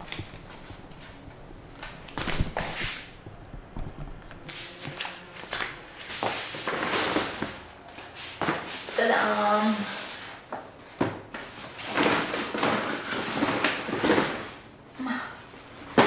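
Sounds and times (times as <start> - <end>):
fabric rustling and flapping: 0.0 - 10.6.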